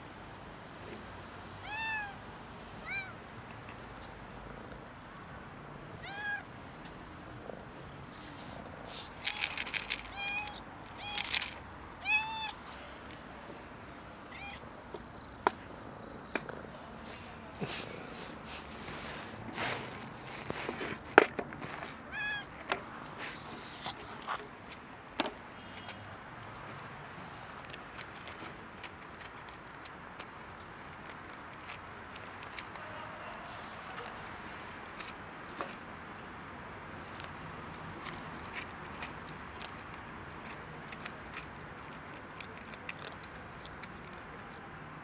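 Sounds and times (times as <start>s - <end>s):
cats meowing: 1.6s - 2.2s, 2.8s - 3.2s, 6.0s - 6.5s, 10.1s - 12.6s, 14.2s - 14.7s, 22.1s - 22.5s.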